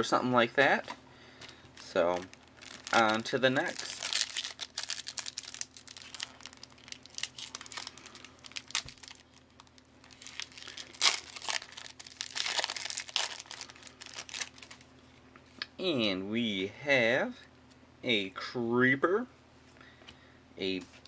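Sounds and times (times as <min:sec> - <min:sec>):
foil pack crinkling and tearing: 0:01.8 - 0:14.9.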